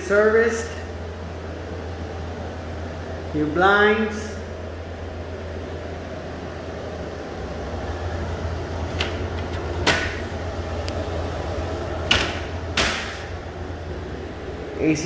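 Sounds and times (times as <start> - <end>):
air conditioner humming: 0.0 - 15.0
sharp knocks: 9.8 - 10.3, 12.1 - 13.2.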